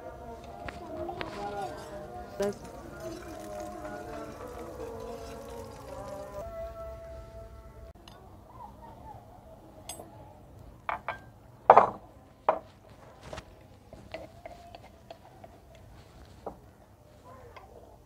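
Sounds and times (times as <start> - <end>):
spoon working in a jar: 1.3 - 6.5.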